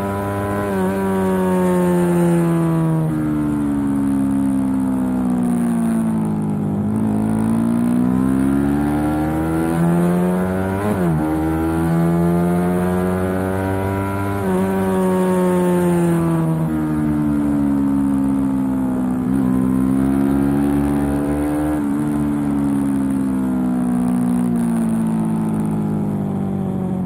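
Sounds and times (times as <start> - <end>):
motorcycle engine revving: 0.0 - 4.8, 5.4 - 26.3.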